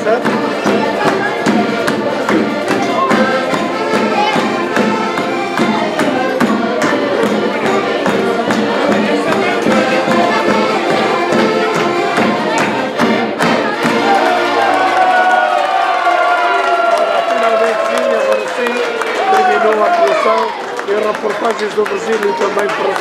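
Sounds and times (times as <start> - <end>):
accordions: 0.0 - 15.4
folk band playing: 0.0 - 16.0.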